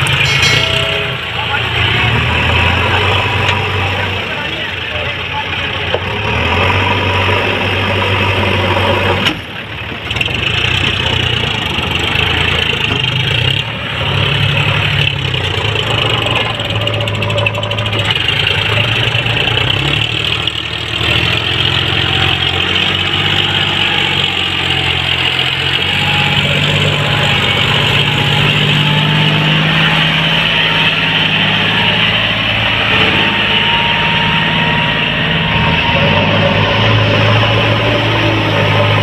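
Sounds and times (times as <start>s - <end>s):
tractor engine under load: 0.0s - 39.0s.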